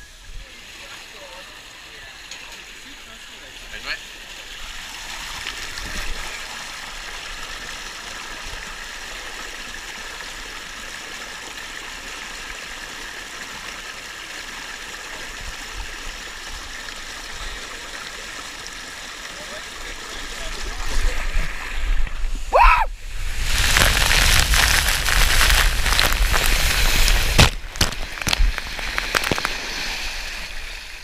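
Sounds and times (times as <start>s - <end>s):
water rushing down slide: 0.0s - 31.0s.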